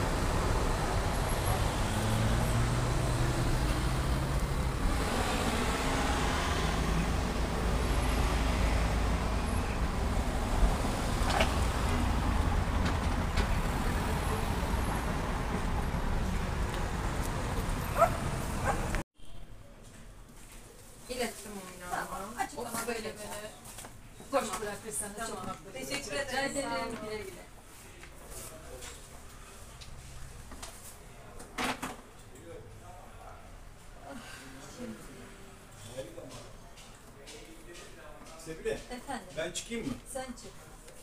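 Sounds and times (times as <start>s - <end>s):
cars passing rumble: 0.0s - 19.0s.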